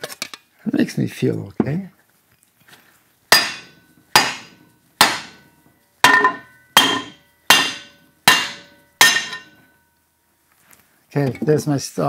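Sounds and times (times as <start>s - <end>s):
mallet striking metal bracket: 3.3s - 9.6s.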